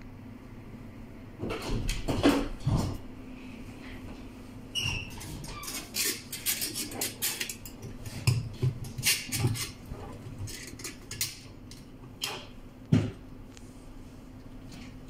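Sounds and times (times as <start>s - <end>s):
small metal parts clicking and scraping: 5.6s - 7.8s.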